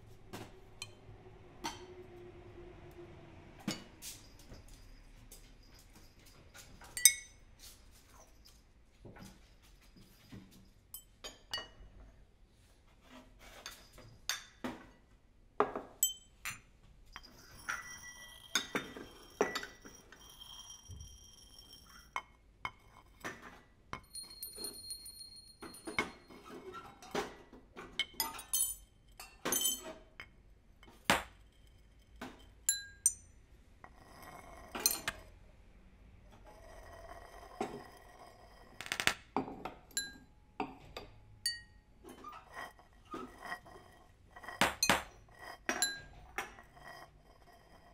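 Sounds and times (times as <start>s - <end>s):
ceramic cups clinking: 5.6s - 7.6s, 17.2s - 26.4s, 27.1s - 33.2s, 33.8s - 35.3s, 36.5s - 47.9s.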